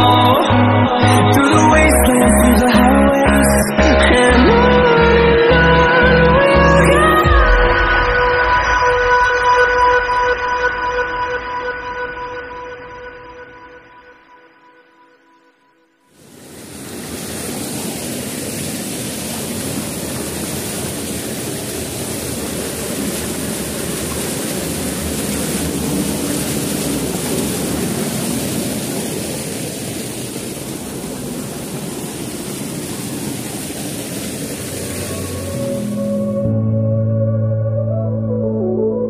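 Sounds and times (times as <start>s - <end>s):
waterfall roaring: 16.2s - 36.5s.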